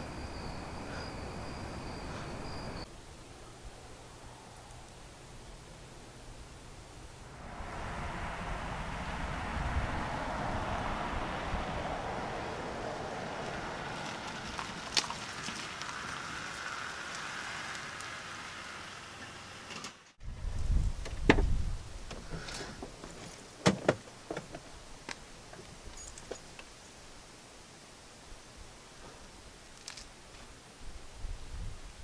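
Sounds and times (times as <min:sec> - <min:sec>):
low rumble: 0:07.2 - 0:14.8
car approaching: 0:07.2 - 0:19.8.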